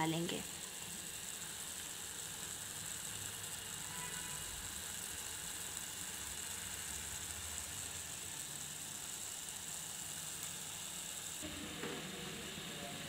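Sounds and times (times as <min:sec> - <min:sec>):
sauce simmering in a frying pan: 0:00.0 - 0:13.0.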